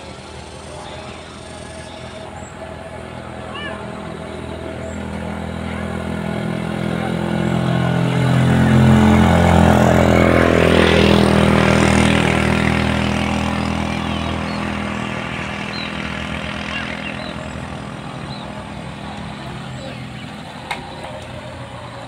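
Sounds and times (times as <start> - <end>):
engine passing by: 0.0 - 22.0.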